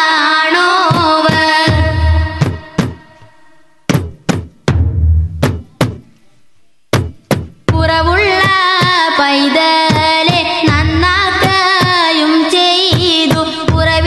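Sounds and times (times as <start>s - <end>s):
high voice singing devotional song: 0.0s - 3.8s, 7.7s - 14.0s
drum beats: 0.8s - 6.2s, 6.9s - 9.2s, 9.8s - 14.0s.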